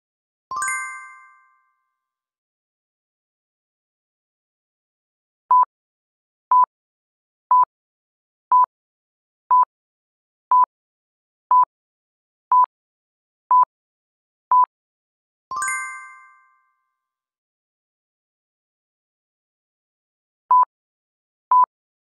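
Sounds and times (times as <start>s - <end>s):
bell-like ding: 0.5s - 1.8s, 15.5s - 16.8s.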